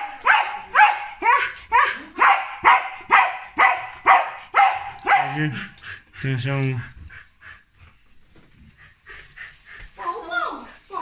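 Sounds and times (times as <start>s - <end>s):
dog barking: 0.0s - 5.7s.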